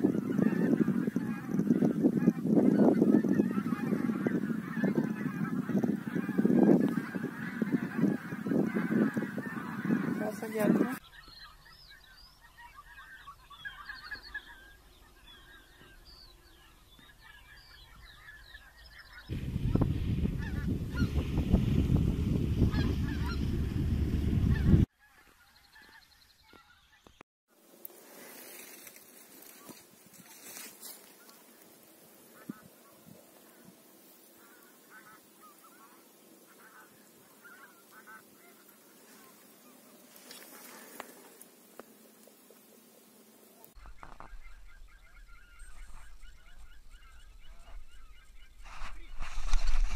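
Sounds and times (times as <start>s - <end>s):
geese honking: 0.0s - 27.1s, 28.3s - 42.7s, 43.4s - 49.9s
brief rustling: 48.6s - 49.9s.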